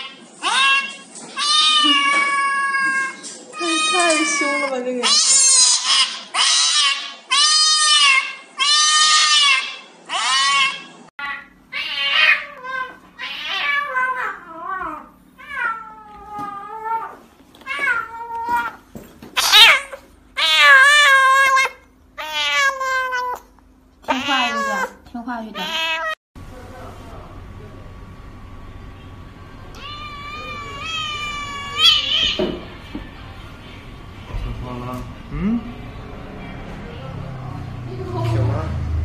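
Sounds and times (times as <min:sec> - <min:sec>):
cat yowling in distress: 0:00.0 - 0:18.8, 0:19.4 - 0:23.5, 0:24.1 - 0:25.0, 0:25.6 - 0:26.2, 0:29.8 - 0:32.5
cat meowing: 0:00.4 - 0:18.8, 0:19.4 - 0:26.2, 0:29.7 - 0:32.6.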